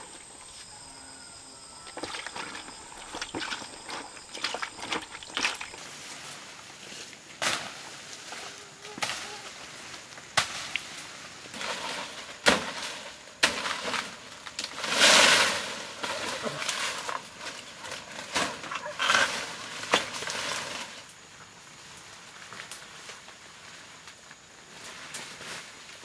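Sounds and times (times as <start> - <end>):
leaves rustling: 0.0 - 26.0.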